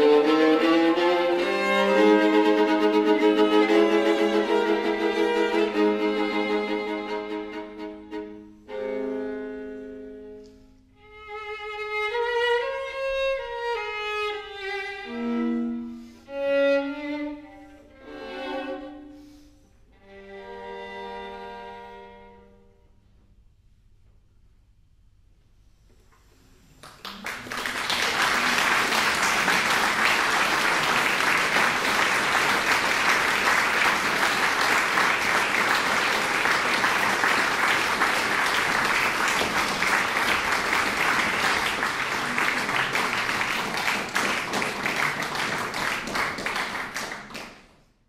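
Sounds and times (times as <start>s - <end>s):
audience applauding: 26.8s - 47.8s.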